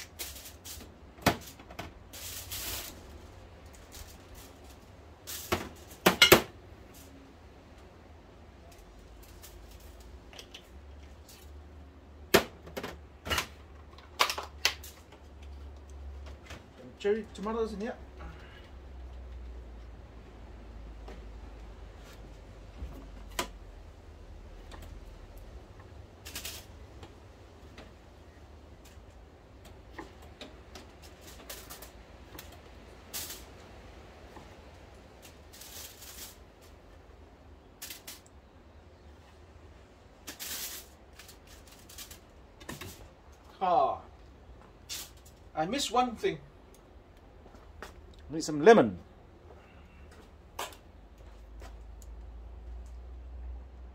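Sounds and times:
aluminium foil crinkling: 0.0 - 6.0, 26.1 - 26.8, 30.8 - 33.6, 35.0 - 36.9, 37.7 - 38.4, 40.2 - 43.1.

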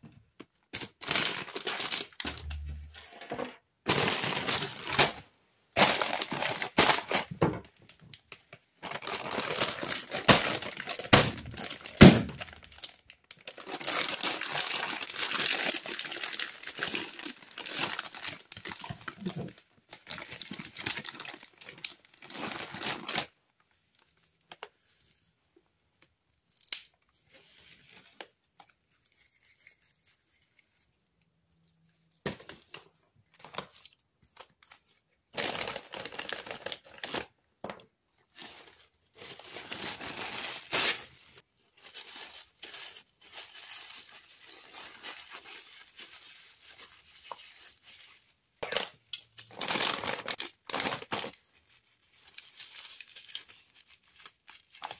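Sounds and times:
plastic snack bags crinkling: 0.6 - 24.8, 35.3 - 54.9
snack bag tearing: 48.6 - 51.4.

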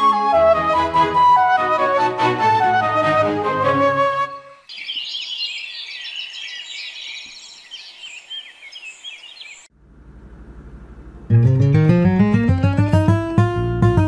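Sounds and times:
small birds chirping: 4.6 - 9.7
low steady hum: 9.7 - 12.4.

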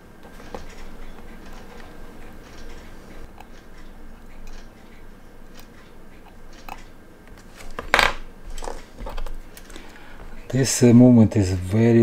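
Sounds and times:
metal tweezers ticking and clicking: 0.4 - 7.0.

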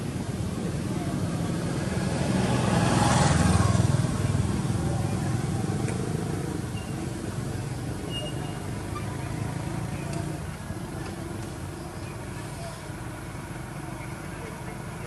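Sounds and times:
vehicle engine passing by: 0.0 - 11.0.

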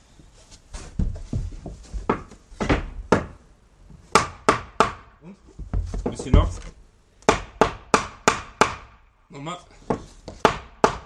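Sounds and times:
knocking on wooden frame: 1.0 - 3.4, 4.1 - 8.9, 9.9 - 11.0.

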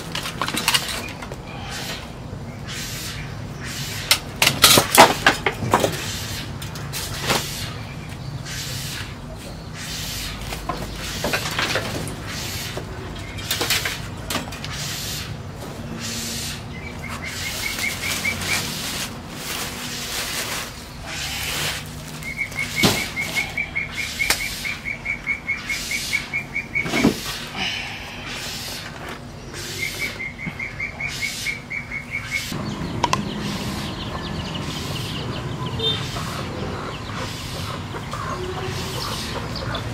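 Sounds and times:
rustling and scraping junk: 0.0 - 2.1, 4.0 - 8.2, 8.9 - 23.6, 26.8 - 27.6, 28.4 - 29.8.

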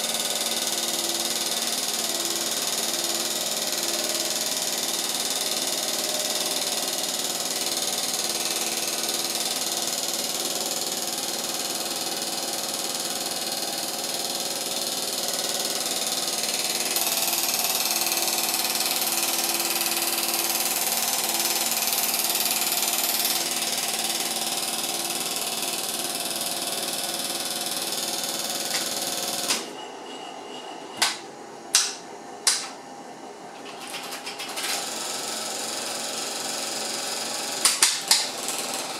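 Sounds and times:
film projector whirring and rattling: 0.0 - 29.8, 31.0 - 38.9
sharp clicks: 31.0 - 32.8.

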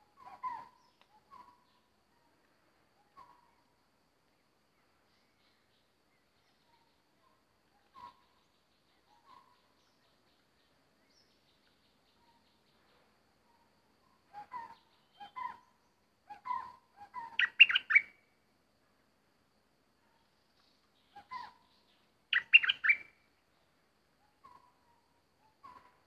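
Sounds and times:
bird chirping: 0.1 - 2.4, 3.0 - 3.7, 4.3 - 18.3, 20.0 - 26.0.

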